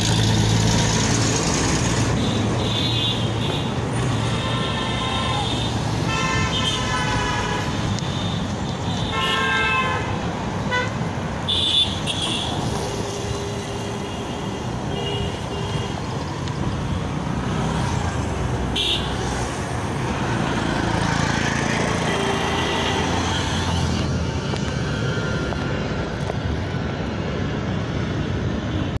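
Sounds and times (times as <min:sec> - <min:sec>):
traffic rumble: 0:00.0 - 0:29.0
vehicle horns honking: 0:02.2 - 0:10.9, 0:11.5 - 0:12.7, 0:18.8 - 0:19.2, 0:21.9 - 0:23.9.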